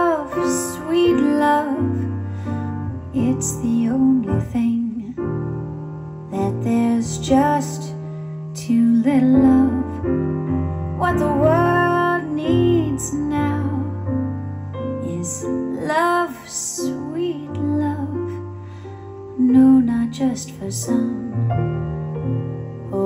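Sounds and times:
woman singing with vibrato: 0:00.0 - 0:02.2, 0:03.1 - 0:05.1, 0:08.6 - 0:10.0, 0:11.0 - 0:14.0
bass line: 0:00.0 - 0:07.8, 0:08.6 - 0:15.9
piano chords: 0:00.0 - 0:23.0.

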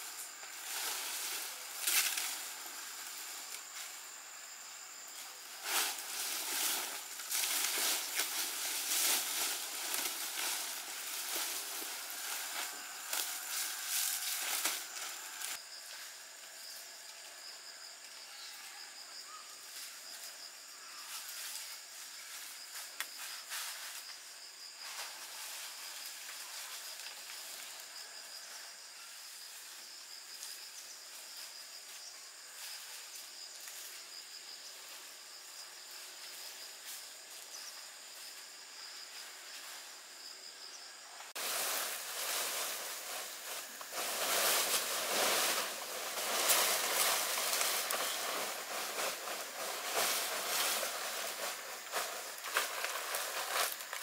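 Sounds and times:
insects chirring: 0:00.0 - 0:54.0
dense crackling and rustling: 0:41.4 - 0:54.0.

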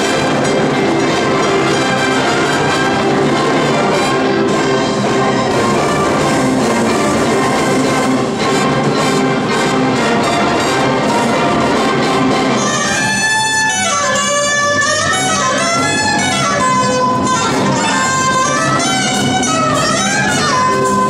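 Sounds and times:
jazz band playing: 0:00.0 - 0:21.0
alto saxophone solo: 0:12.6 - 0:21.0.

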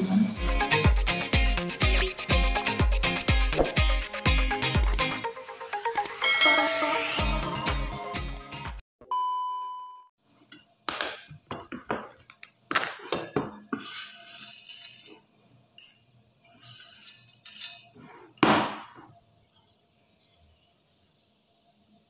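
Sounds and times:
metal tins and spoon clinking: 0:13.2 - 0:18.0.

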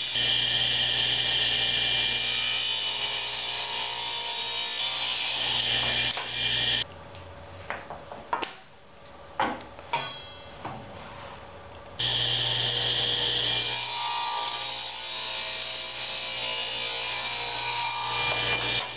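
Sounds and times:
table saw cutting wood: 0:00.0 - 0:06.8, 0:12.0 - 0:18.9.

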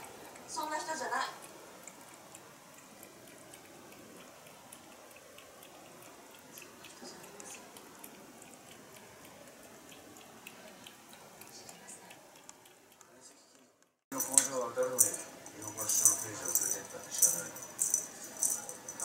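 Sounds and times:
cat lapping water: 0:00.0 - 0:13.3.

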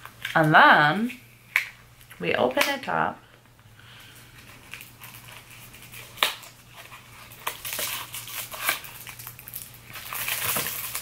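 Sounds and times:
packaging crackling and clicking: 0:04.4 - 0:11.0.

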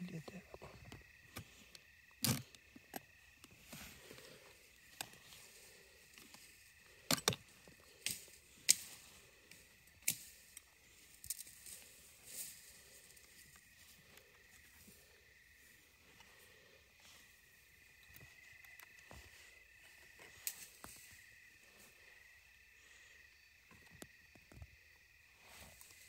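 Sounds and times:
wire trap clicking and clinking: 0:02.2 - 0:03.0, 0:07.0 - 0:08.9.

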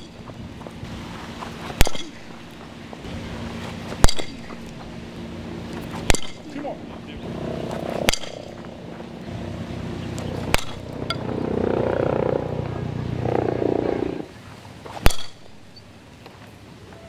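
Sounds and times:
muffled rumbling: 0:00.0 - 0:14.3
bat cracking a ball: 0:01.7 - 0:02.3, 0:05.8 - 0:06.4, 0:07.7 - 0:08.7, 0:10.4 - 0:10.8, 0:15.0 - 0:15.5.

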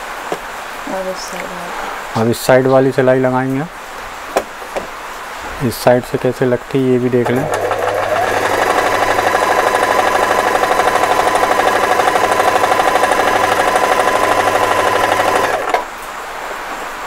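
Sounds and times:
sewing machine stitching: 0:07.2 - 0:15.9.

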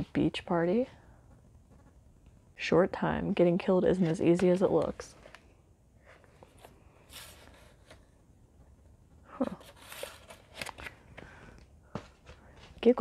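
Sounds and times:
videotape cases rustling: 0:09.6 - 0:12.8.

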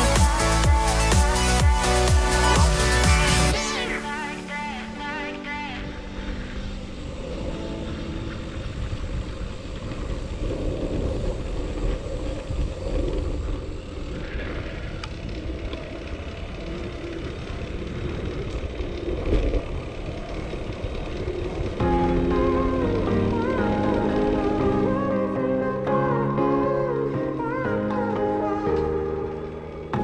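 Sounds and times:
low road rumble: 0:00.0 - 0:30.0
wind buffeting microphone: 0:05.8 - 0:25.3
bike rattling on asphalt: 0:07.9 - 0:22.1.

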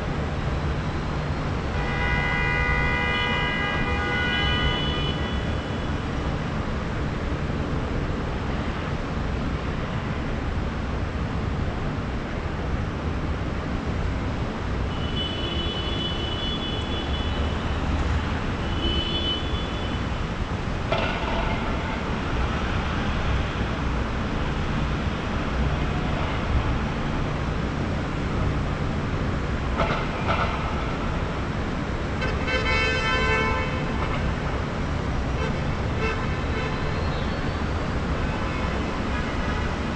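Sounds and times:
traffic rumble: 0:00.0 - 0:39.9
car horns honking: 0:01.8 - 0:05.5.

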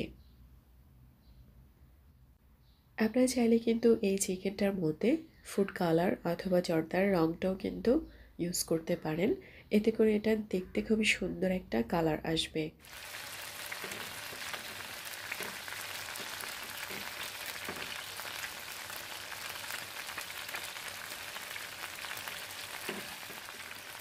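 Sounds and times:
chicken sizzling in hot fat: 0:12.8 - 0:24.0.

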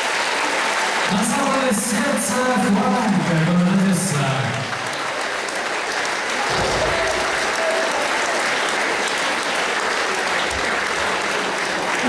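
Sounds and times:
audience applauding: 0:00.0 - 0:12.0
dull low thump: 0:06.5 - 0:07.6.

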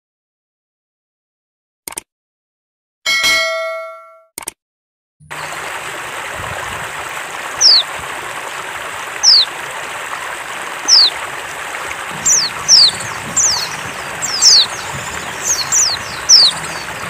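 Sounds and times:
bright chime: 0:03.1 - 0:04.3
running water: 0:05.3 - 0:17.0.

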